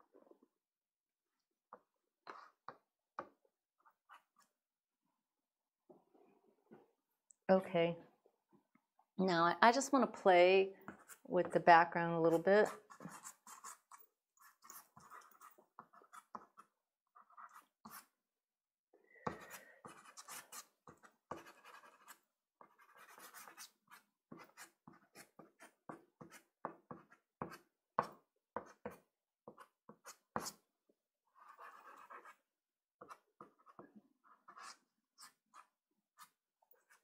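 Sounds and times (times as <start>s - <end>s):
pastel stick scratching on card: 12.3s - 18.1s, 19.3s - 27.6s, 31.4s - 32.4s, 33.0s - 37.0s.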